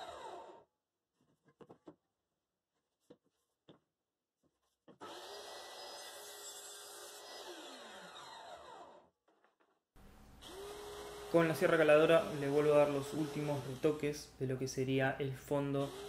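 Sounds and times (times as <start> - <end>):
table saw motor whining: 0.0 - 0.7, 5.0 - 9.1, 10.4 - 14.1, 15.8 - 16.0.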